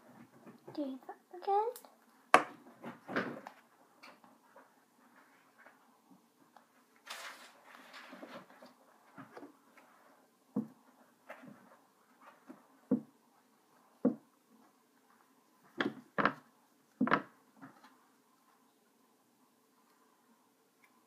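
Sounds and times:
rustling fabric and cardboard: 2.6 - 18.7.

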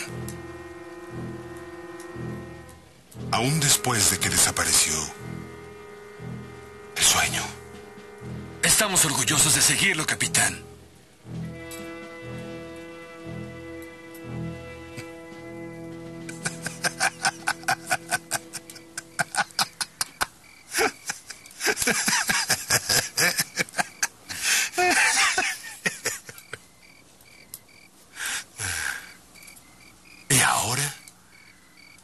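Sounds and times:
crickets chirping: 0.0 - 32.0
man laughing hard: 16.2 - 26.6.

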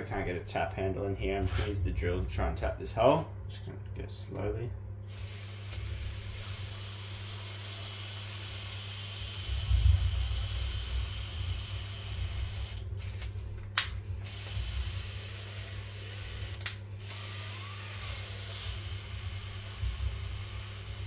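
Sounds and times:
drill motor whining at low speed: 5.0 - 13.4, 14.2 - 21.0.

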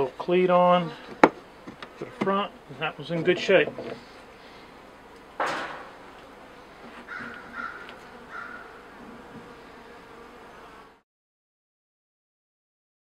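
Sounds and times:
bees buzzing: 0.3 - 11.0
short bird calls: 7.1 - 8.7.

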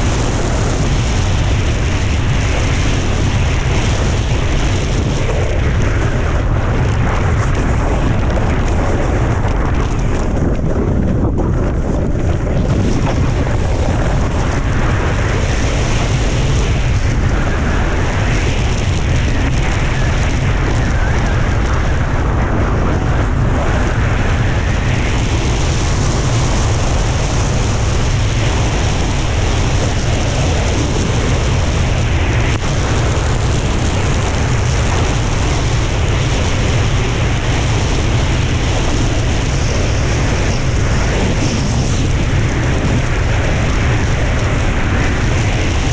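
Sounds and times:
wind buffeting microphone: 0.0 - 45.9
snowboard scraping across snow: 22.7 - 45.9.

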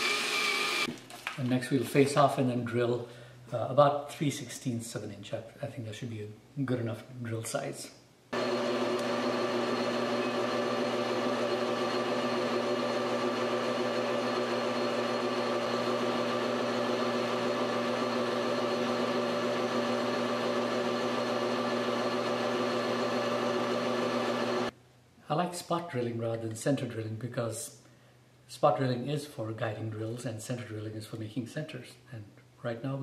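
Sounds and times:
drill cutting metal rod: 0.0 - 0.9, 8.4 - 24.7
metal lathe whining: 0.0 - 0.9, 8.4 - 24.7.

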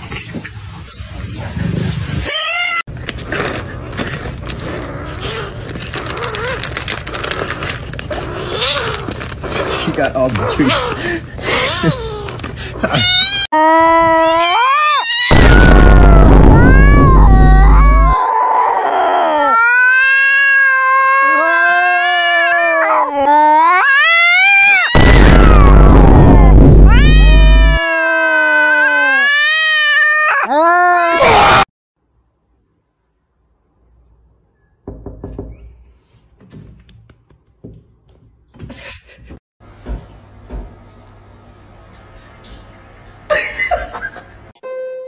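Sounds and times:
cat yowling: 12.9 - 31.7
cat meowing: 14.2 - 31.1
low thumps: 25.0 - 27.8.

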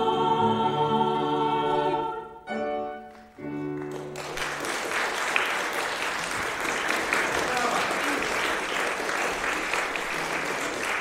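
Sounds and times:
women's choir singing chords: 0.0 - 3.0
audience applause: 3.1 - 11.0.

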